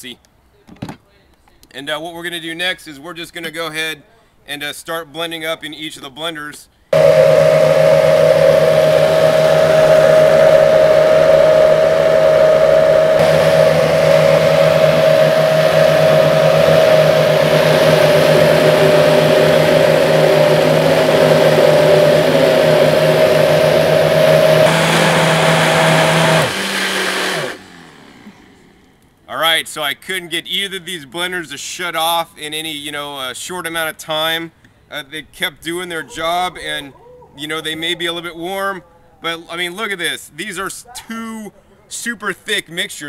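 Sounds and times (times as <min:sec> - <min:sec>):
blenders humming: 0:07.0 - 0:28.9.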